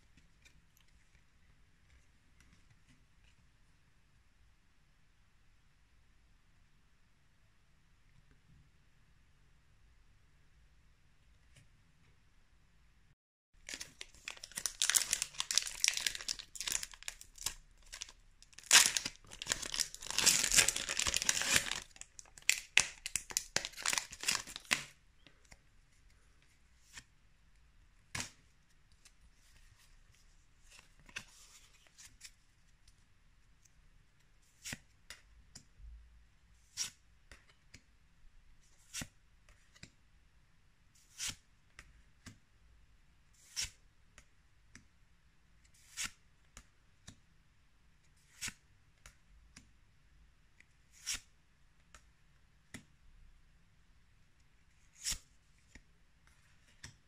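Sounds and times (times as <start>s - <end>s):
foil wrapper tearing and crinkling: 13.7s - 24.8s.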